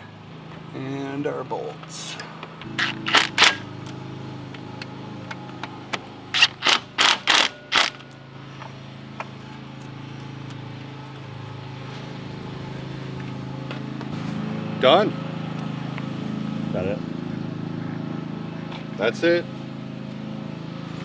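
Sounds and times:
drill rattling bursts: 0:02.6 - 0:03.7, 0:06.3 - 0:08.0
cordless drill motor humming: 0:02.6 - 0:04.0.

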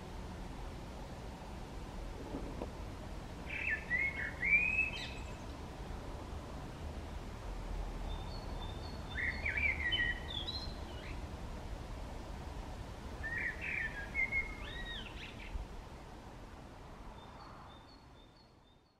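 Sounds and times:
blackbird singing: 0:03.5 - 0:05.5, 0:08.1 - 0:11.2, 0:13.2 - 0:15.6.

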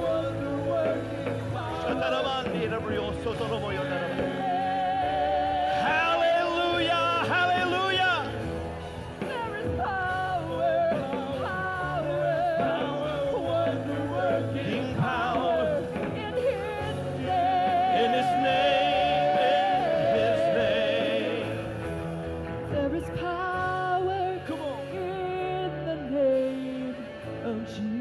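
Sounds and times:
person singing into a microphone: 0:00.0 - 0:08.3, 0:09.2 - 0:21.8, 0:22.7 - 0:28.0
choir singing: 0:00.0 - 0:23.3
instrumental backing: 0:00.0 - 0:28.0.

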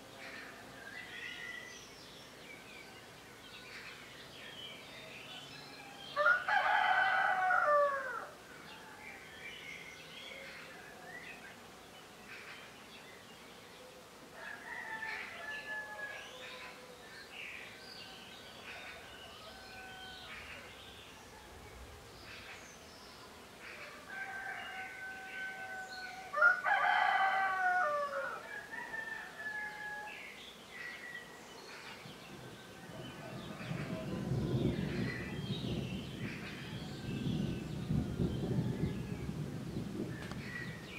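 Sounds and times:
songbirds chirping: 0:00.0 - 0:40.9
rooster crowing: 0:05.7 - 0:08.4, 0:14.4 - 0:16.8, 0:18.9 - 0:20.6, 0:23.8 - 0:30.3.

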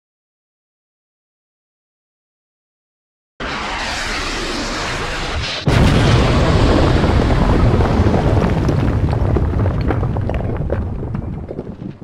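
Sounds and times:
steady rushing noise: 0:03.4 - 0:06.3
loud explosion blast: 0:03.4 - 0:11.9
deep rumble with crackles: 0:03.4 - 0:12.0.

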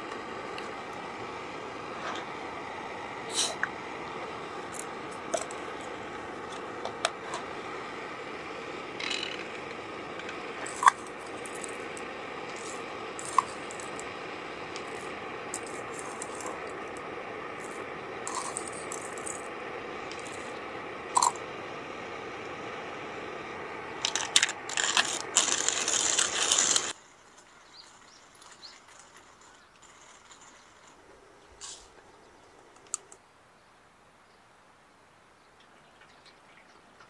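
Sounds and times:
steady background noise: 0:00.0 - 0:37.0
small hard objects clinking: 0:10.6 - 0:11.9, 0:12.6 - 0:14.0, 0:17.6 - 0:19.4, 0:24.0 - 0:27.0.

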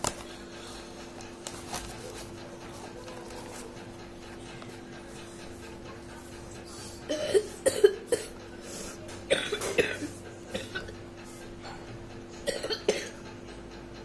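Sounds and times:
person coughing: 0:07.1 - 0:08.4, 0:09.3 - 0:11.0, 0:12.4 - 0:13.2.

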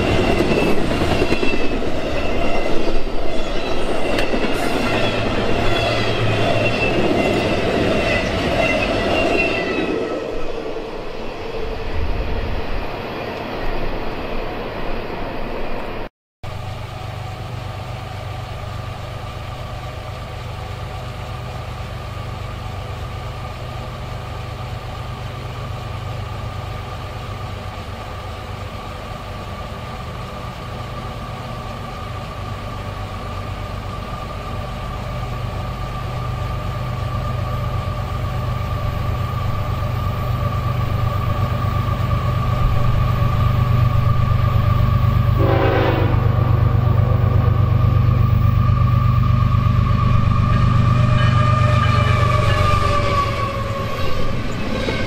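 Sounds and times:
train running: 0:00.0 - 0:55.0
train horn: 0:45.3 - 0:46.7, 0:50.4 - 0:55.0.

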